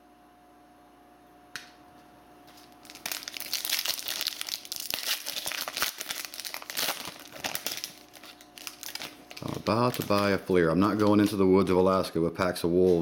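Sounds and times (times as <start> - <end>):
foil wrapper crinkling: 2.5 - 11.8.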